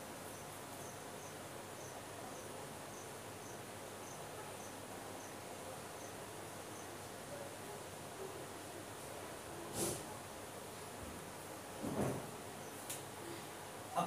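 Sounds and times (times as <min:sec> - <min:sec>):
steady background hiss: 0:00.0 - 0:14.0
cricket chirping: 0:00.3 - 0:05.4, 0:06.0 - 0:07.0.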